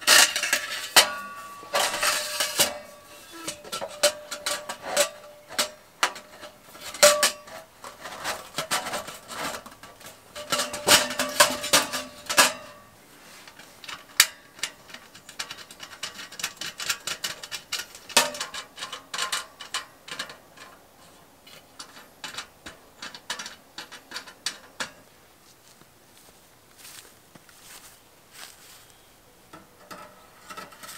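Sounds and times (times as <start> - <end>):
metal pipe clinking and knocking: 0.1 - 12.9, 21.8 - 25.0
small metal clicks: 13.5 - 20.8, 21.5 - 25.0.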